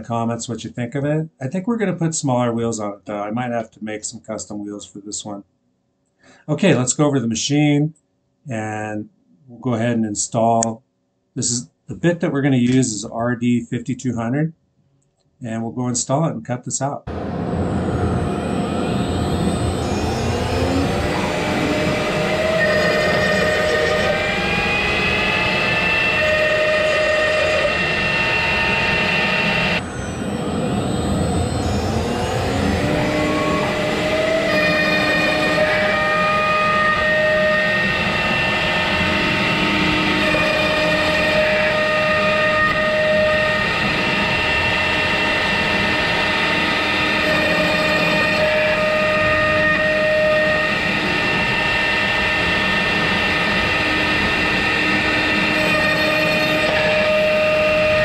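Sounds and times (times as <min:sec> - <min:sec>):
machine motor whining: 0:17.1 - 0:58.0
router bit cutting wood: 0:17.1 - 0:58.0.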